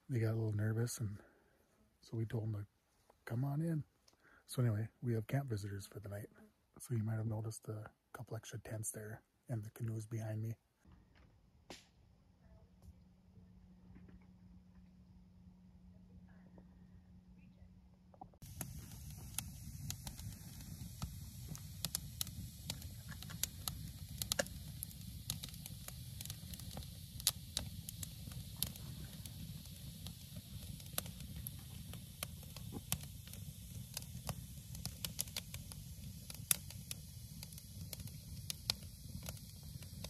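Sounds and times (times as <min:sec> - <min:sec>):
campfire crackling and popping: 0:18.4 - 0:40.0.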